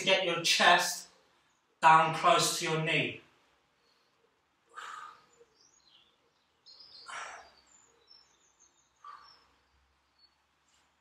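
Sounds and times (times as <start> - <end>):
faint high bird chirps: 3.8 - 10.9
person breathing out heavily: 4.7 - 5.4.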